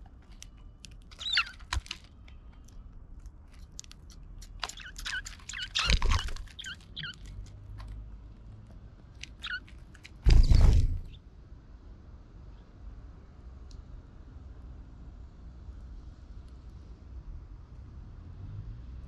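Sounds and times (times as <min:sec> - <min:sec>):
beaks ticking on seed: 0:00.2 - 0:08.0, 0:09.1 - 0:10.2
sparrows chirping: 0:01.2 - 0:01.7, 0:04.7 - 0:07.5, 0:09.3 - 0:09.7
flurry of bird wings: 0:04.7 - 0:07.4, 0:10.2 - 0:11.2.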